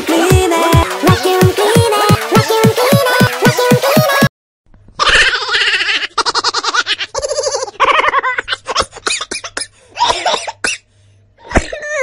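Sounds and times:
high-pitched laughter: 0:05.0 - 0:09.4, 0:11.4 - 0:12.0.

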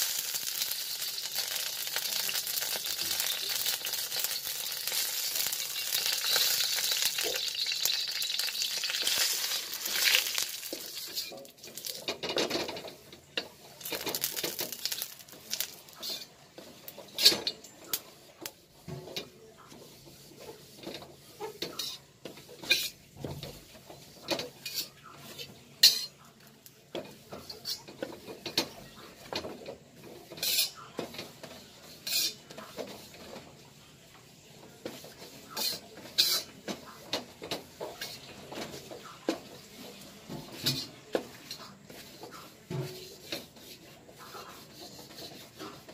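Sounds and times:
metal spatula scraping a wok: 0:00.0 - 0:17.7, 0:19.7 - 0:26.2, 0:30.0 - 0:33.7, 0:34.8 - 0:45.9.

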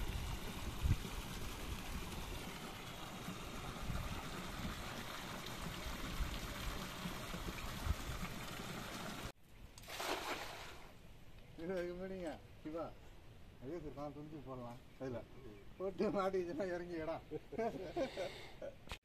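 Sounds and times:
river water flowing: 0:00.0 - 0:09.3
water trickling off a net: 0:00.0 - 0:10.9.

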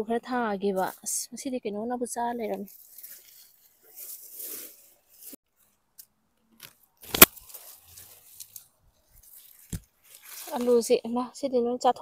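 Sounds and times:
plant leaves rustling: 0:02.4 - 0:05.8, 0:06.7 - 0:11.2
sharp click: 0:06.6 - 0:07.4.

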